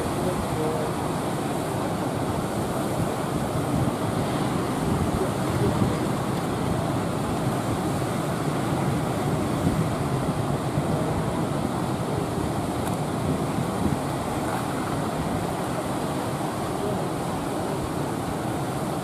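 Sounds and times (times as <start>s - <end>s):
ocean waves breaking: 0.0s - 19.0s.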